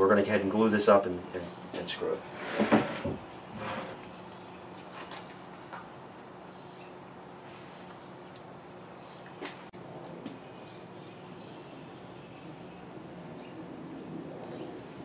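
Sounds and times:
steady low hum: 5.4 - 15.0.

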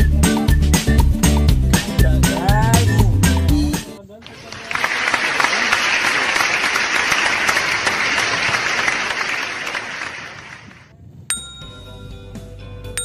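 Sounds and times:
applause: 4.2 - 10.9
bell-like chime tune: 11.3 - 12.2.

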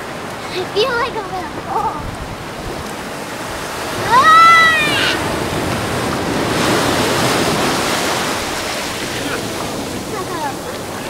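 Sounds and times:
surf washing up sand: 0.0 - 11.0
child crying out: 4.0 - 5.2.

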